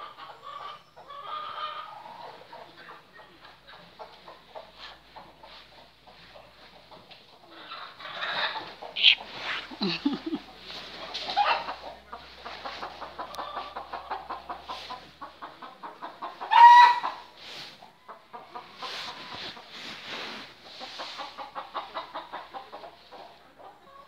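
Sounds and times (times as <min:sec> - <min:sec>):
chickens clucking: 0:00.0 - 0:24.0
loud chicken call: 0:08.2 - 0:10.4, 0:16.5 - 0:17.2.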